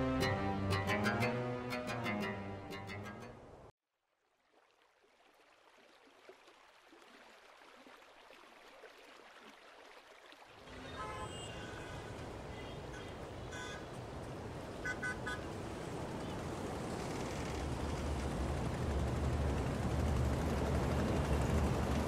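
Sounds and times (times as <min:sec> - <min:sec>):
background music: 0:00.0 - 0:03.7
distant horn toots: 0:10.6 - 0:14.1, 0:14.7 - 0:16.9
faint outdoor ambience: 0:10.6 - 0:22.0.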